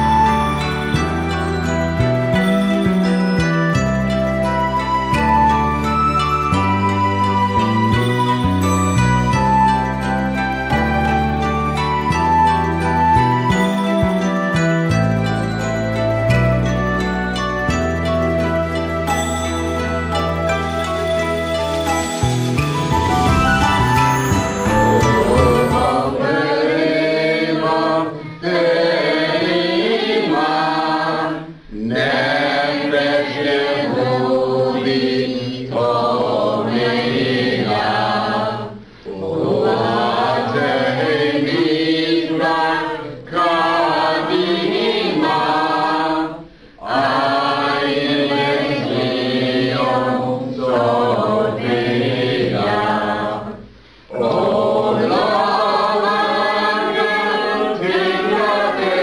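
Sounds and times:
group singing chant-like song: 0:24.4 - 0:59.0.

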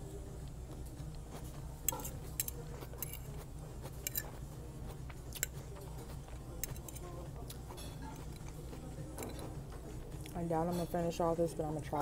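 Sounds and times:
steady low hum: 0:00.0 - 0:12.0
fork clicking on a plate: 0:01.8 - 0:03.4, 0:04.0 - 0:04.4, 0:05.3 - 0:05.6, 0:06.6 - 0:09.5.

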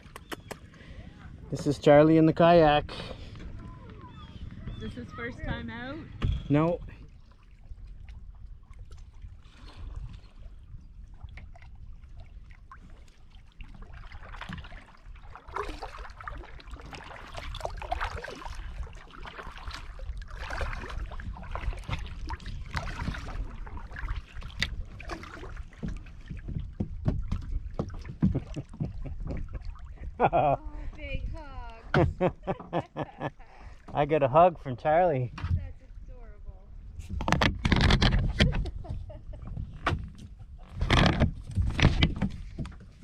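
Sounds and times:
water splashing against kayak: 0:00.0 - 0:34.2, 0:34.8 - 0:43.0
knocks on hull: 0:24.6 - 0:29.5, 0:31.9 - 0:32.4.

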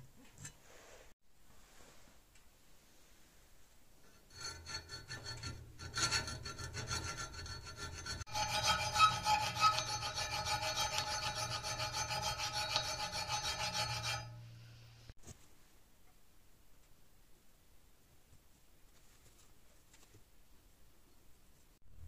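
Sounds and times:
hand file rasping on steel: 0:04.0 - 0:14.6.

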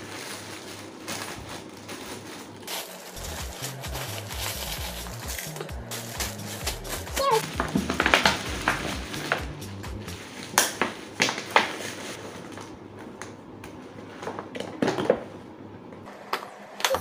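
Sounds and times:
plastic bags crinkling: 0:00.0 - 0:12.8
background music: 0:03.2 - 0:10.3.

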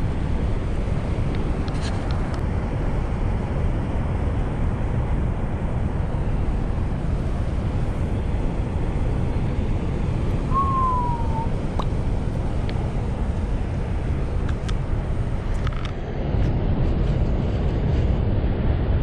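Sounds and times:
steady low rumbling: 0:06.0 - 0:15.5
short falling tone: 0:10.5 - 0:11.5.

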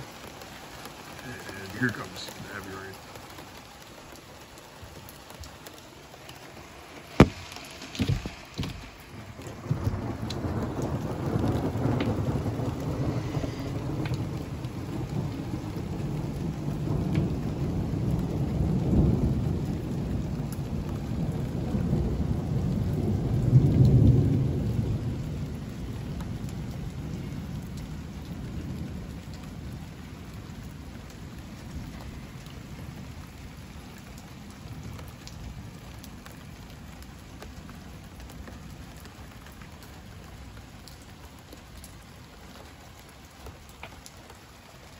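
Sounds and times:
heavy rain: 0:00.0 - 0:44.9
rolling thunder: 0:07.2 - 0:29.9.

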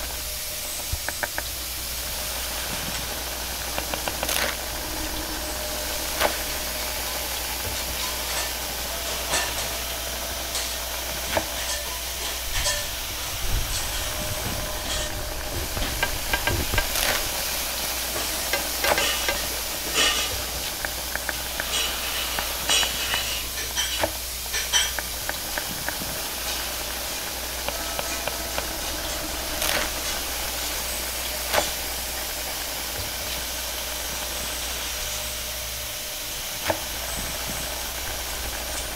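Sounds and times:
food sizzling in a wok: 0:00.0 - 0:38.9
gas flame hissing: 0:00.0 - 0:38.9
metal utensil clanking on wok: 0:04.8 - 0:13.0, 0:18.1 - 0:26.9.

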